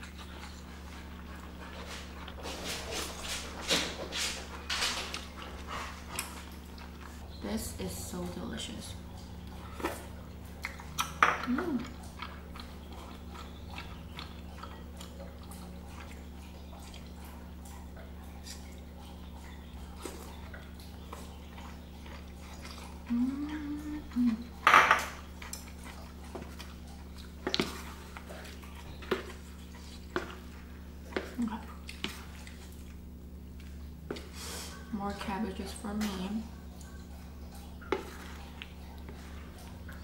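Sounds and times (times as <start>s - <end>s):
steady low hum: 0.0s - 40.0s
person humming mm: 11.4s - 12.0s, 23.1s - 24.5s.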